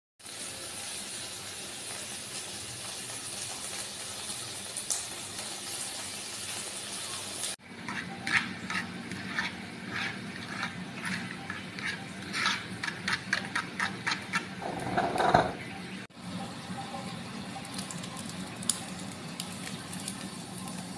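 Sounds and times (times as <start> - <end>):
egg sizzling in a pan: 0.2 - 15.5, 16.6 - 20.9.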